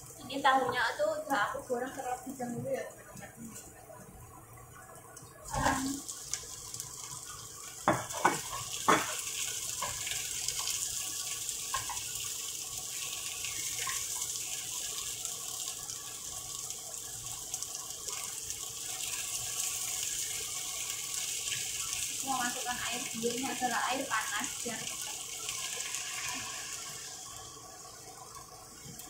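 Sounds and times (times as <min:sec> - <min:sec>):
tofu sizzling in frying pan: 0:00.0 - 0:03.8, 0:05.2 - 0:29.0
spatula knocking against pan: 0:07.8 - 0:09.2.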